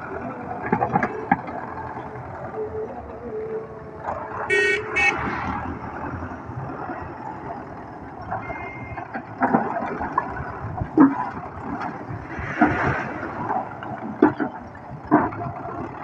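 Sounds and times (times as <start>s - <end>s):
tractor diesel engine under load: 0.0s - 16.0s
short horn-like beeps: 4.5s - 5.3s, 8.4s - 9.1s.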